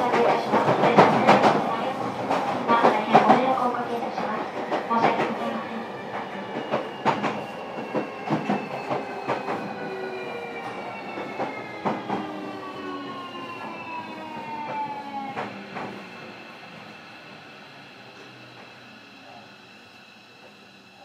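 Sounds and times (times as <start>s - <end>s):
train wheels clicking on rail joints: 0.0s - 10.1s.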